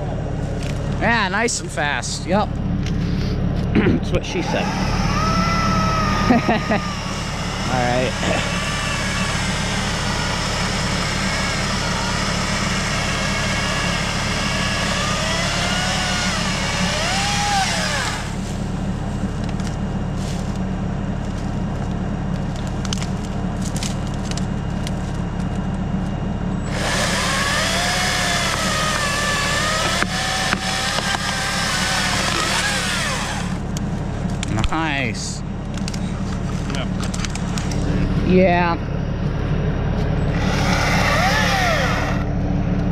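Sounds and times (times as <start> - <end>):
low engine hum: 0.0 - 42.9
chainsaw revving: 4.3 - 18.7, 26.6 - 33.6, 40.2 - 42.3.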